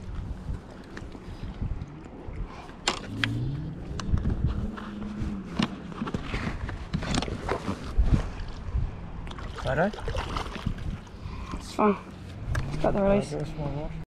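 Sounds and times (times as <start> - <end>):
wind buffeting microphone: 0.0 - 14.0
low hum rising in pitch: 3.0 - 6.2
water lapping: 4.9 - 13.2.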